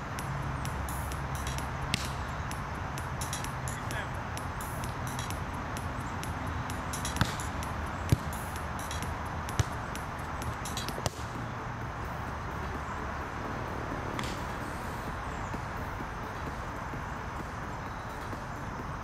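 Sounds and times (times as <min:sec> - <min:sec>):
hands slapping volleyball: 0:07.1 - 0:07.5.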